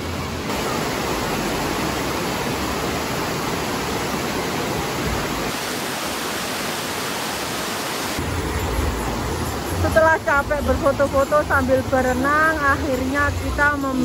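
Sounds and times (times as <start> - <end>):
stream cascading over rocks: 0.0 - 14.0
waterfall rushing: 0.0 - 14.0.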